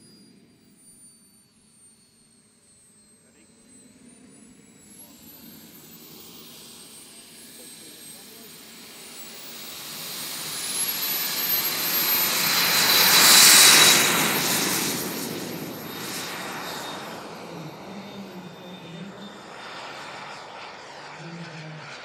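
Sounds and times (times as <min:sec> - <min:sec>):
model jet fly-by roar and whine: 0:00.0 - 0:01.0, 0:01.6 - 0:22.0.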